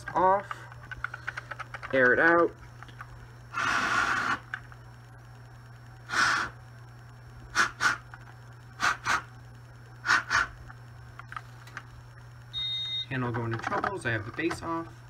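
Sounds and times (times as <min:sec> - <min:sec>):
person blowing air puffs: 0:03.5 - 0:04.5, 0:06.0 - 0:06.6, 0:07.5 - 0:08.1, 0:08.8 - 0:09.3, 0:10.0 - 0:10.6.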